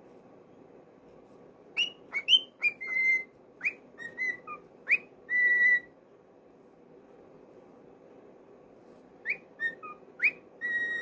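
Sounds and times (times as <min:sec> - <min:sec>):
cockatiel whistling chirps: 0:01.7 - 0:05.9, 0:09.2 - 0:11.0.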